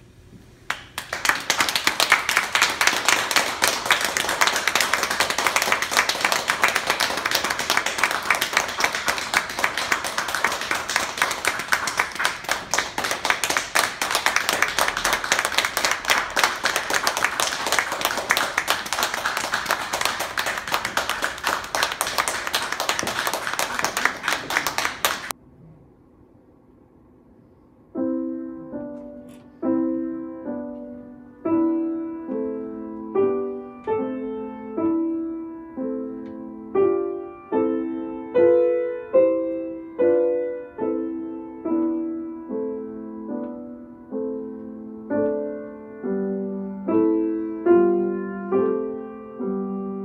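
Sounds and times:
audience applauding: 0.7s - 25.3s.

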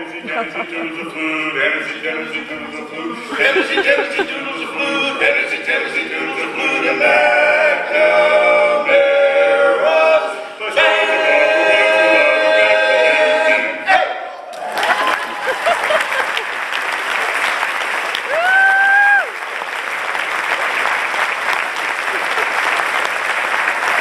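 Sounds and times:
quartet singing a cappella: 0.0s - 14.2s
audience applause: 14.5s - 24.0s.

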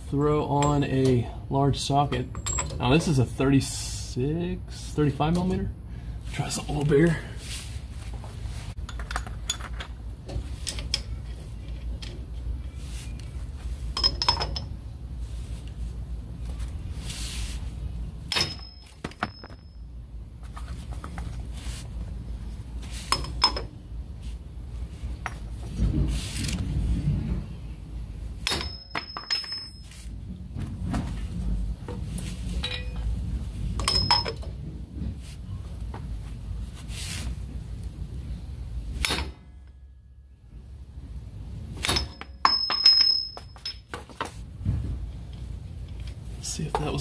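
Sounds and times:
low steady rumble: 0.0s - 47.0s
metal tools clinking: 0.5s - 1.2s, 2.0s - 3.2s, 8.9s - 10.0s, 13.9s - 14.8s, 23.0s - 23.7s, 28.4s - 30.1s, 32.5s - 33.1s, 33.8s - 34.5s, 41.8s - 44.0s.

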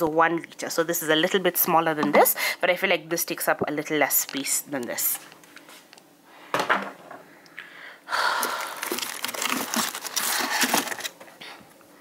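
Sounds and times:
packaging rustling and crinkling: 8.2s - 11.4s
plastic containers clicking and clattering: 8.8s - 11.3s.

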